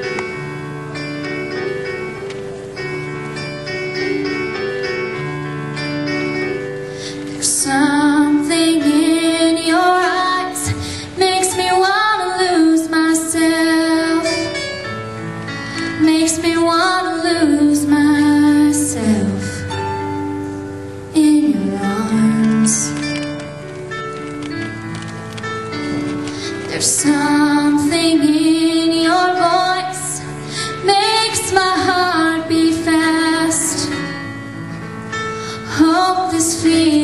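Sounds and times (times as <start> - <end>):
instrumental accompaniment: 0.0 - 37.0
woman singing a slow ballad: 7.3 - 14.6, 15.8 - 19.7, 21.1 - 23.1, 26.4 - 34.3, 35.6 - 37.0.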